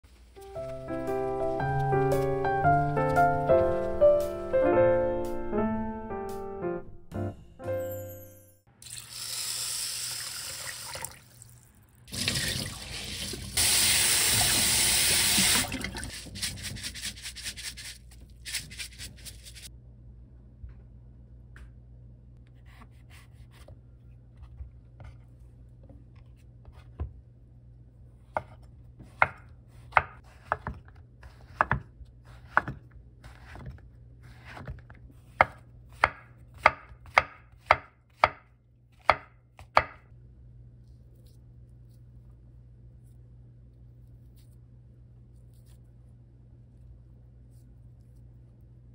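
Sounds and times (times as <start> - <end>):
tap water running into bowl: 8.8 - 16.2
knife chopping on cutting board: 28.3 - 40.1.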